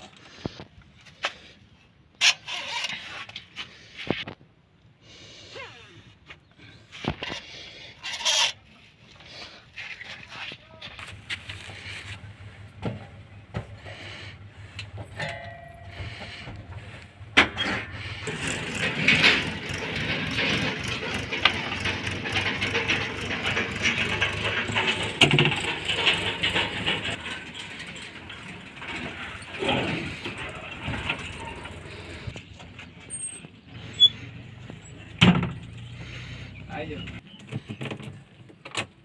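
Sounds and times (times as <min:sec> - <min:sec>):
backhoe loader clattering: 0:10.9 - 0:39.0.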